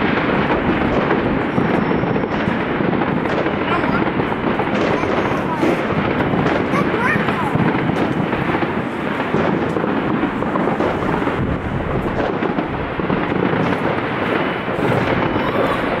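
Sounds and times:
fireworks bangs and crackles: 0.0s - 16.0s.

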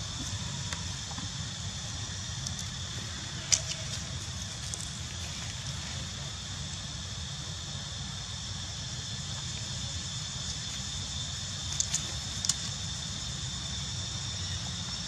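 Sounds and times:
high hiss: 0.0s - 15.0s.

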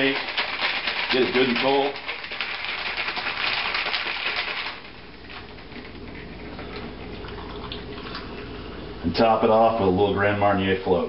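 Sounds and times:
ice rattling in cocktail shaker: 0.0s - 4.9s.

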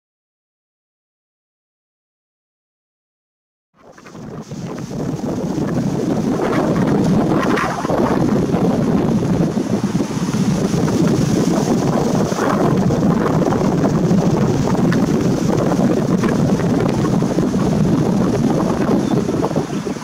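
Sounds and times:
wind buffeting microphone: 3.8s - 20.0s.

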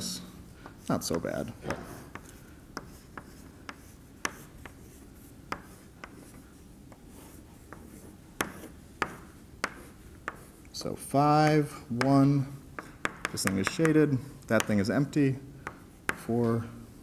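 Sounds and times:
chalk scratching on blackboard: 0.6s - 10.9s.

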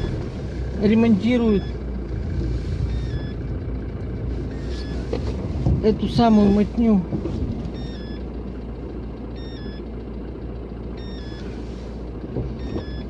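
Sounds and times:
car engine idling: 0.0s - 13.0s
two-note electronic beep: 2.9s - 3.4s, 7.8s - 8.2s, 9.3s - 9.9s, 11.0s - 11.4s.

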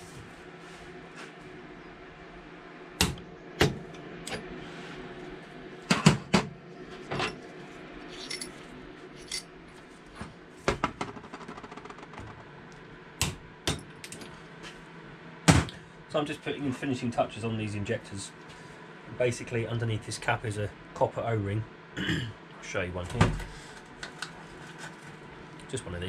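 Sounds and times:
metal parts clinking and knocking: 8.1s - 8.6s, 9.2s - 9.5s.

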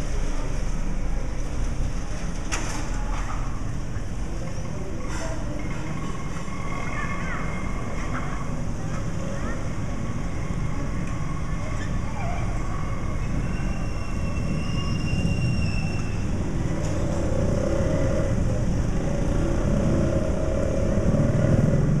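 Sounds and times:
motorcycle engines passing: 15.4s - 22.0s.

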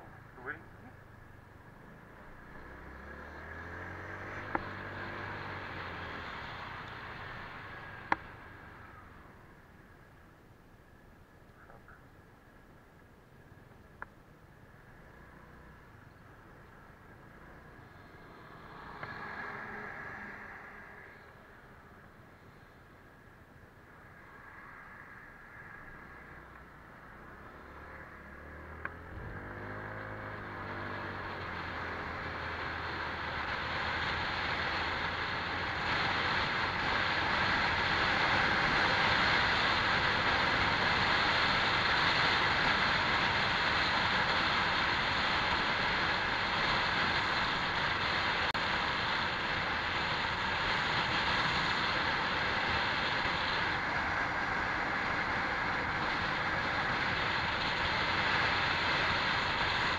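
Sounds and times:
wind and road noise: 0.0s - 59.9s
scooter engine pulling away: 1.8s - 8.6s, 27.2s - 59.9s.

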